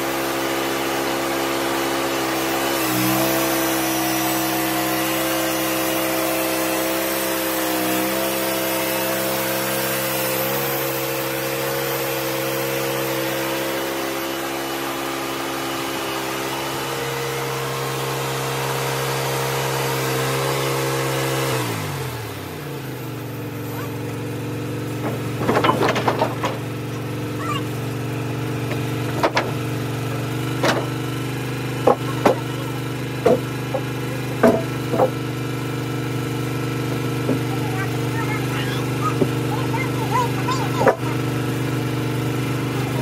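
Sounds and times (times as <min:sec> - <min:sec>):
sawmill engine running: 0:00.0 - 0:43.0
timbers clunking on mill bed: 0:23.0 - 0:43.0.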